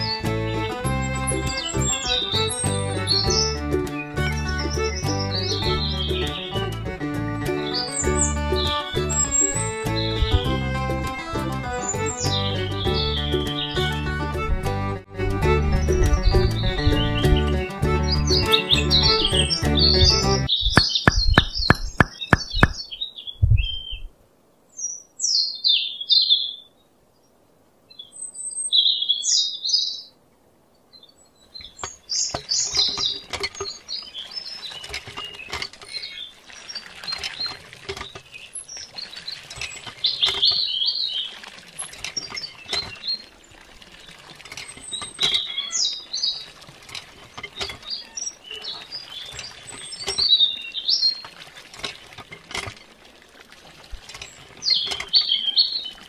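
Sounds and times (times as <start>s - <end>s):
birds chirping: 0.0s - 30.2s, 30.8s - 51.4s, 54.1s - 56.0s
music beat: 0.2s - 22.8s
water splashing into pool: 18.1s - 23.0s, 31.7s - 56.0s.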